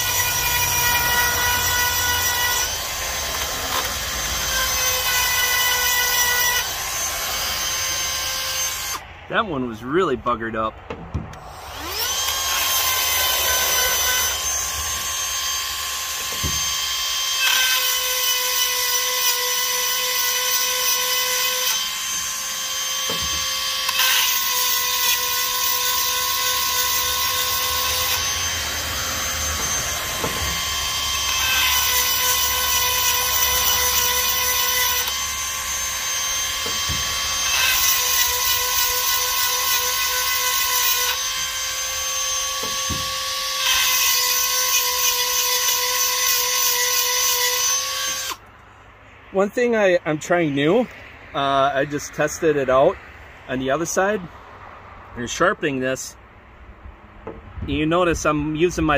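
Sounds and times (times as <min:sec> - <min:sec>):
rotary tool grinding stone whining: 0:00.0 - 0:09.0, 0:11.5 - 0:48.4.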